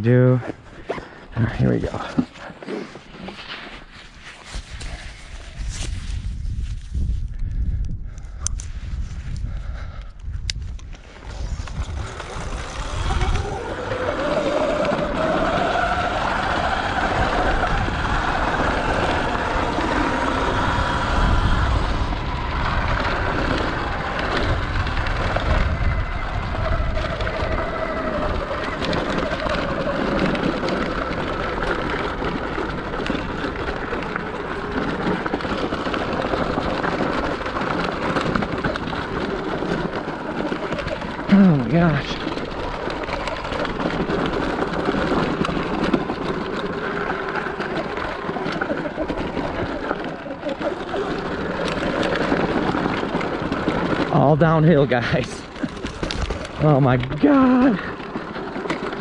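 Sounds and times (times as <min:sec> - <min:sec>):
tyres crunching over stones: 0:10.9 - 0:59.0
electric motor whine: 0:11.2 - 0:54.1.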